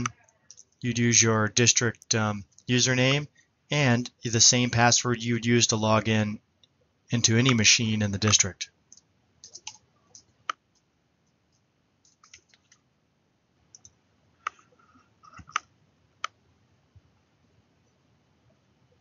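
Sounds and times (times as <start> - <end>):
keyboard typing: 0.0 - 1.0, 7.2 - 12.8, 13.7 - 16.4
mouse clicks: 13.7 - 14.7.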